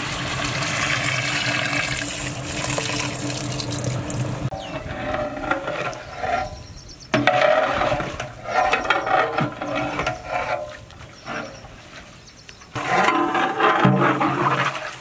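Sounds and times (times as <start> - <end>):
metal ladle scraping pot: 4.5 - 11.8, 12.7 - 15.0.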